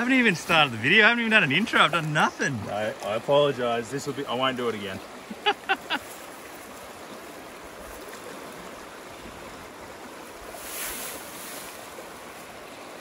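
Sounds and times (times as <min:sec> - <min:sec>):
creek running over rocks: 0:00.0 - 0:13.0
splash in water: 0:10.5 - 0:12.0.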